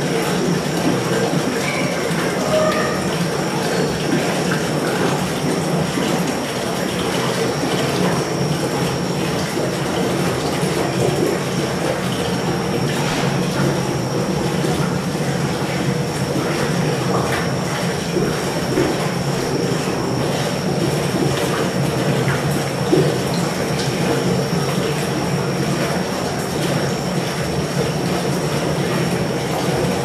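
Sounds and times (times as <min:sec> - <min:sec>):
aquarium water rushing: 0:00.0 - 0:30.0
thin high whine: 0:01.7 - 0:03.9.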